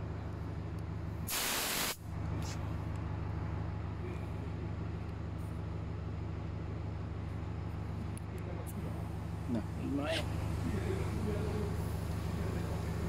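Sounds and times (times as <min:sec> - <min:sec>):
sharp hiss of released air: 0:01.3 - 0:02.6
vehicle engine running: 0:02.0 - 0:13.0.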